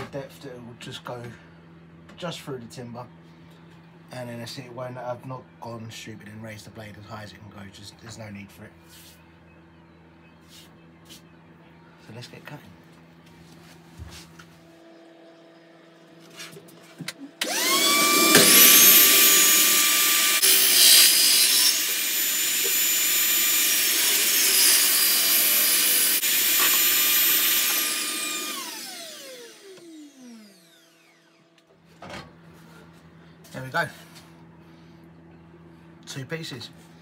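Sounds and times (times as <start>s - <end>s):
saw cutting through wood: 17.4s - 31.4s
table saw whining: 17.4s - 31.6s.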